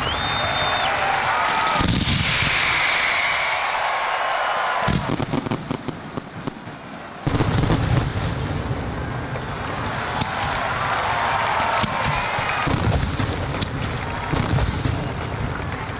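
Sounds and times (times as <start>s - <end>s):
loud rumbling firework bang: 1.8s - 2.7s, 11.8s - 15.3s
firework hiss: 1.8s - 3.6s.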